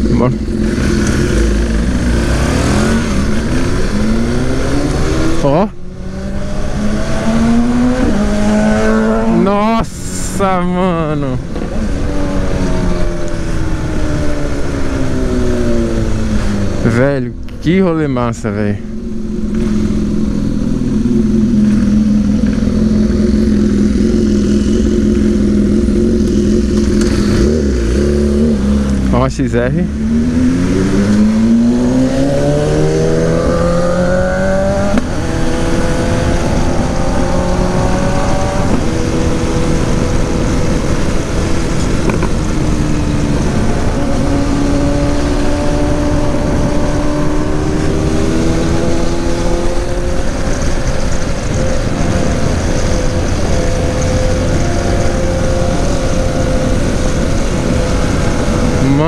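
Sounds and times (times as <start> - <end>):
wind and road noise: 0.0 - 59.0
motorcycle engine pulling away: 29.8 - 59.0.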